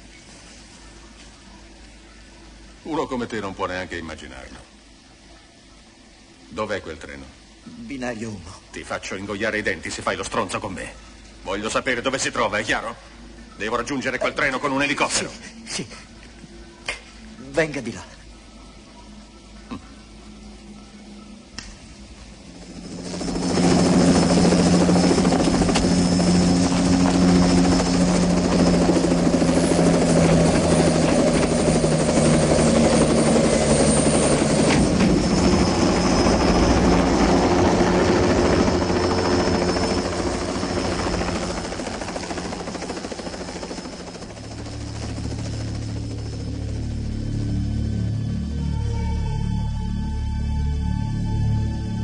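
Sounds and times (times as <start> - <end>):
high steady whine: 0.0 - 52.0
helicopter rotor blades chopping: 22.4 - 48.2.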